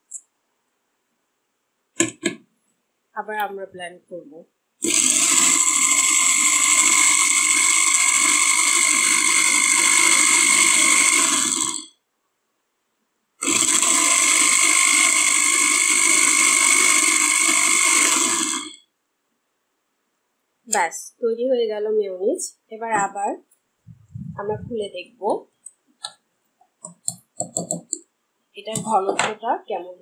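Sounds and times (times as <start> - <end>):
blender motor whining: 4.8 - 11.9, 13.4 - 18.8, 28.7 - 29.0.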